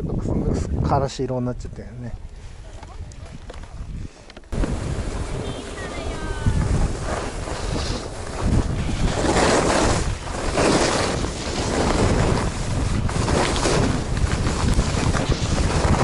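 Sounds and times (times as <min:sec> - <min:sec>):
wind buffeting microphone: 0:00.0 - 0:16.0
ski edges scraping snow: 0:04.6 - 0:16.0.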